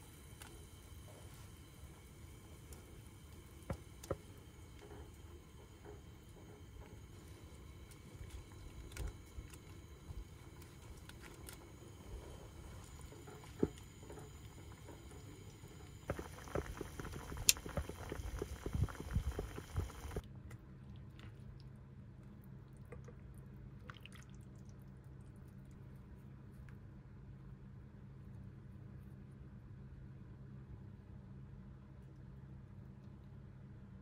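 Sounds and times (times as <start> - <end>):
low hum: 0.0 - 20.3
soup bubbling in a pot: 0.2 - 20.2.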